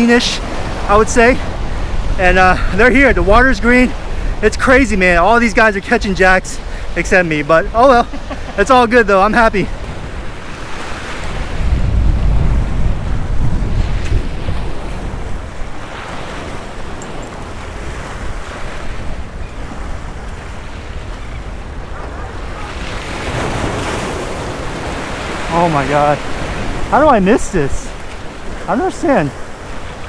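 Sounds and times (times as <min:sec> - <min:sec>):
wind buffeting microphone: 0:00.0 - 0:30.0
waves splashing against boulders: 0:21.9 - 0:30.0.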